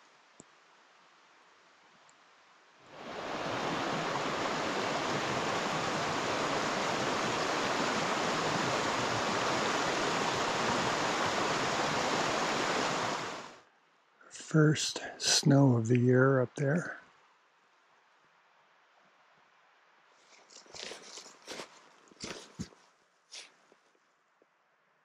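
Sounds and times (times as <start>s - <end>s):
creek rushing over rocks: 2.9s - 13.6s.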